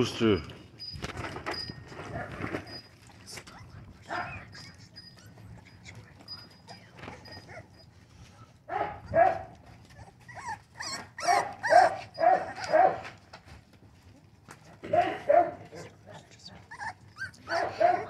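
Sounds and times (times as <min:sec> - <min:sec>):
puppies yelping and whining: 0:00.4 - 0:03.0, 0:04.1 - 0:08.7, 0:09.6 - 0:13.3, 0:15.8 - 0:18.0.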